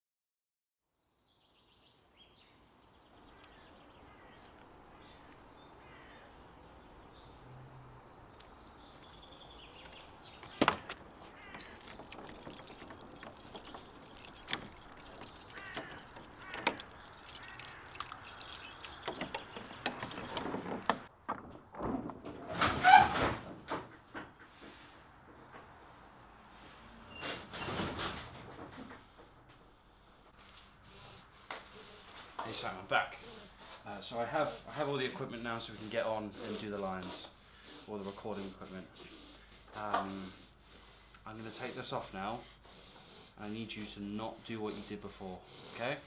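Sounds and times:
birdsong: 1.0s - 21.1s, 30.8s - 45.8s
keys jangling at a padlock: 9.4s - 21.1s.

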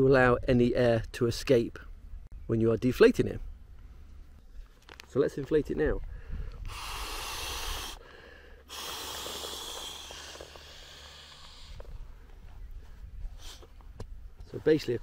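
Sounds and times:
breath blown into pillow valve: 6.6s - 11.8s.

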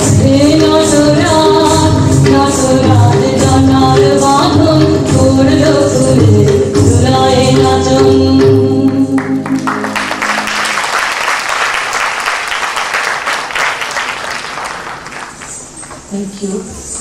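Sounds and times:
audience applause: 9.2s - 15.9s.

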